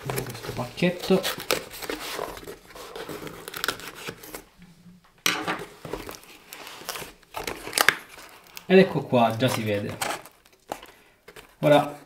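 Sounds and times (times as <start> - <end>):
cardboard box rustling and scraping: 0.0 - 4.5.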